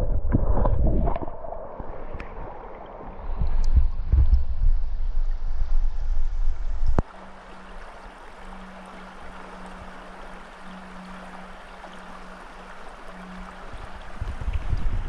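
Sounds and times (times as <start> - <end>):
wind rumble on microphone: 0.0 - 7.1, 7.8 - 15.0
river water over gravel: 5.0 - 15.0.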